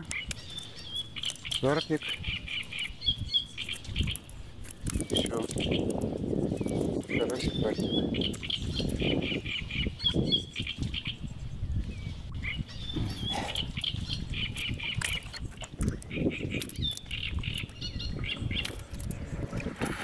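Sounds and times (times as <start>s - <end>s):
fish flapping and splashing in water: 0.0s - 7.5s, 13.6s - 20.0s.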